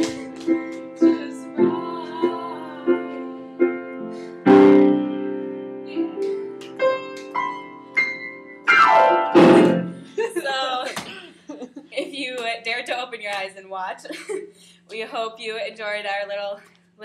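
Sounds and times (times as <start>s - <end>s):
piano chords: 0.0s - 10.2s.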